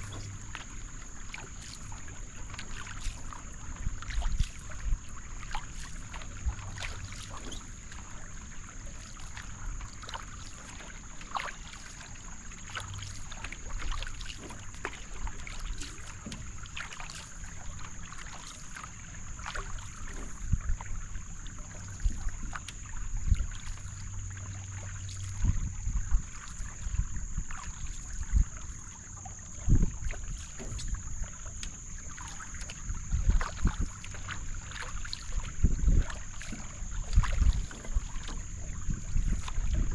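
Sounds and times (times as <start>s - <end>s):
paddle strokes in water: 0.0s - 39.9s
water washing along hull: 0.0s - 39.9s
paddle knocks: 13.2s - 18.8s, 25.2s - 39.9s.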